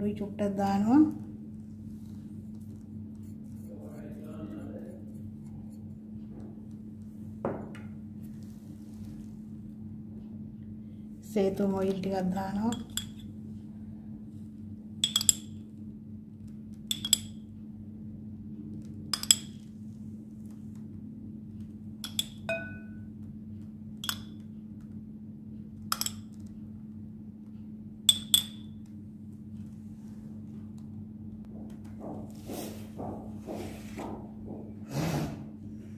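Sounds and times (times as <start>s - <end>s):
steady low hum: 0.0s - 35.9s
spoon clinking on container rim: 12.7s - 13.2s, 15.0s - 15.6s, 16.9s - 17.4s, 22.0s - 23.0s, 24.0s - 24.3s, 25.9s - 26.3s.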